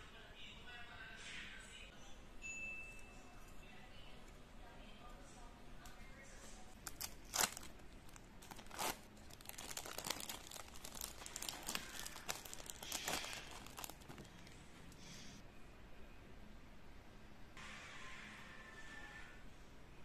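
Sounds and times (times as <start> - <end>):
plastic film crinkling: 6.6 - 14.6.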